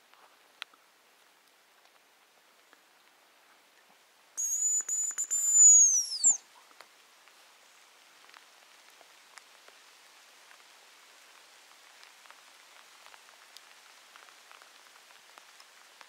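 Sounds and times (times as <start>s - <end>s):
high thin decoy whistle: 4.4s - 6.4s.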